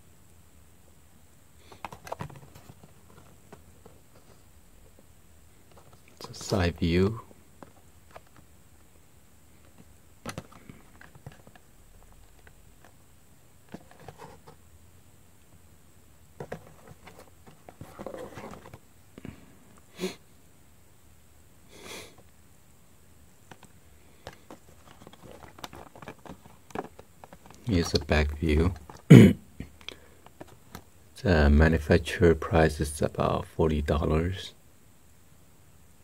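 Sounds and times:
hands handling cardboard box: 1.7 - 8.5, 9.6 - 13.0, 13.6 - 14.6, 16.4 - 18.8, 23.5 - 29.1, 30.2 - 30.9.

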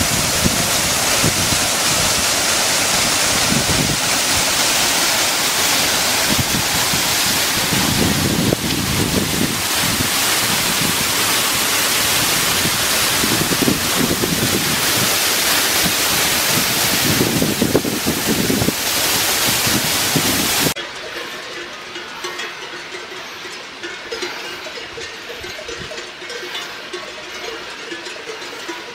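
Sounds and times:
wind buffeting microphone: 0.0 - 20.8
stream rippling over rocks: 0.0 - 28.9.

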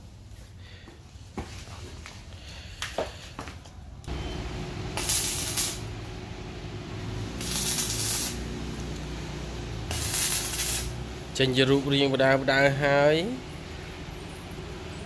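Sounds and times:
steady low hum: 4.0 - 11.4
arc welding hissing: 4.3 - 11.4.

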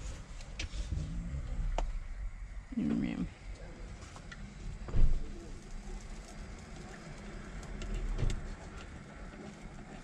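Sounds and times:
sharp thump: 4.9 - 5.3.

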